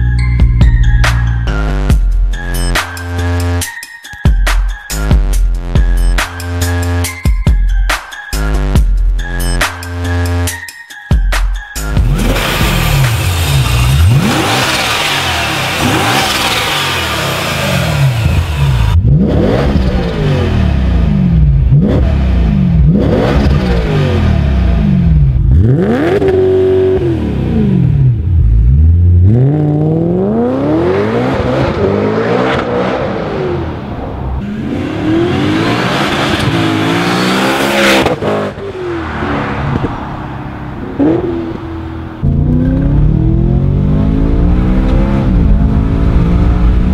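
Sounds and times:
car engine revving: 12.0 - 46.9.

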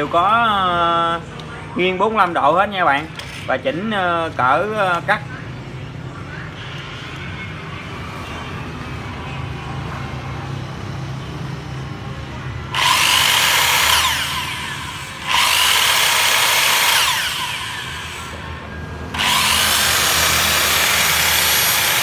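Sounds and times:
circular saw motor whining: 12.7 - 22.0.

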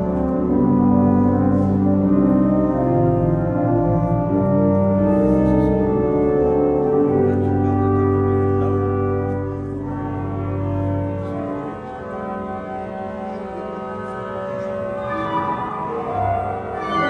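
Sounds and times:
organ bass line: 0.0 - 9.2
pipe organ chords: 0.0 - 17.0.

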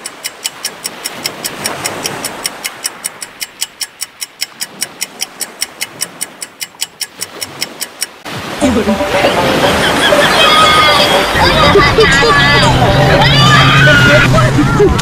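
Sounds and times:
clock ticking rapidly: 0.0 - 8.3
sea water noise: 0.0 - 15.0.

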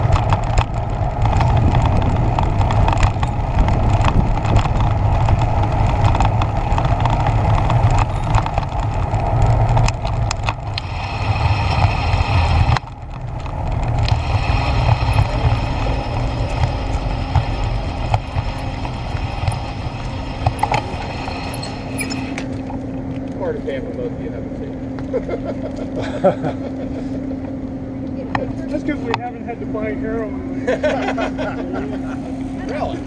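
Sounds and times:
bicycle rattling clicks: 0.0 - 22.6
bicycle tyres rumbling on bricks: 0.0 - 23.0.

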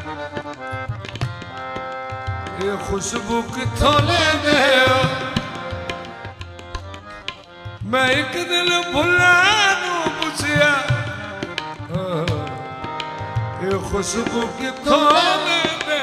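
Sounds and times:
harmonium chords: 0.0 - 16.0
tabla strokes: 0.0 - 16.0
man singing melismatic lines: 2.6 - 5.9, 7.9 - 12.8, 13.6 - 16.0.

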